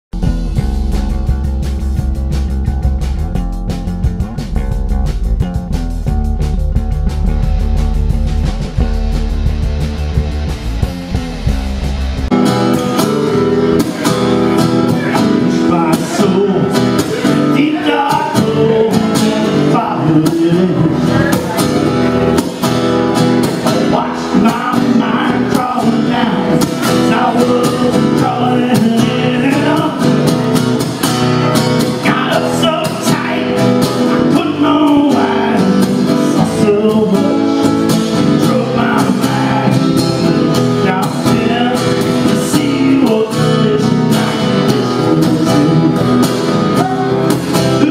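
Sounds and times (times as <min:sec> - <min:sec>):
acoustic guitar strumming: 0:00.1 - 0:47.9
man singing: 0:12.3 - 0:22.6, 0:23.2 - 0:30.6, 0:31.4 - 0:47.9.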